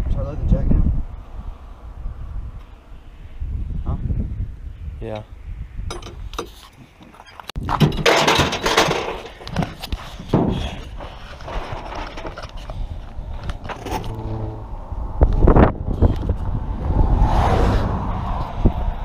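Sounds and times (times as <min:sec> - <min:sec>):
tyres rolling over gravel: 0:07.1 - 0:14.0.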